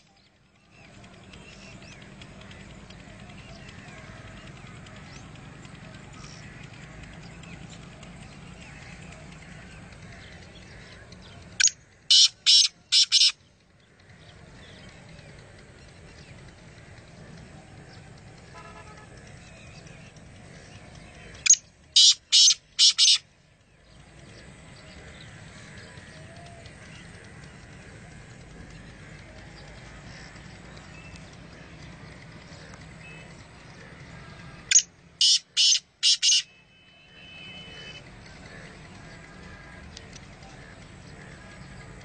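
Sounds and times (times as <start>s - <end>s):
francolin calling: 11.6s - 13.4s, 21.4s - 23.2s, 34.5s - 38.0s.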